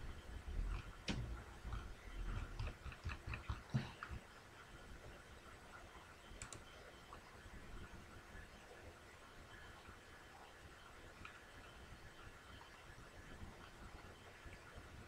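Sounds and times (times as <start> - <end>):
faint irregular clicks: 0.0 - 4.2, 5.7 - 7.3, 11.1 - 12.8
low steady background hiss: 0.0 - 15.0.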